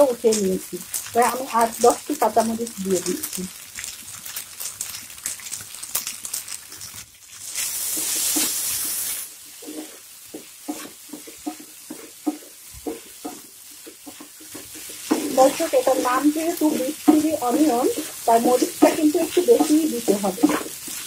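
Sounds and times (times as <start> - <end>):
meat sizzling in a frying pan: 0.0 - 21.0
wooden spatula scraping pan: 9.5 - 21.0.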